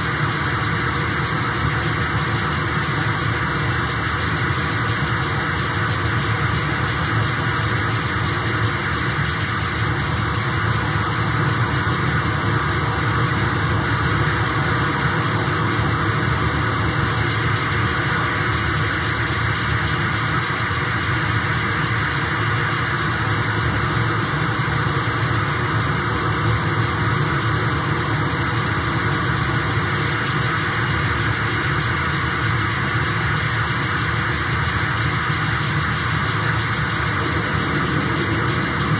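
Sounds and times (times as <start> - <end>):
harsh electronic noise music: 21.8 - 38.9.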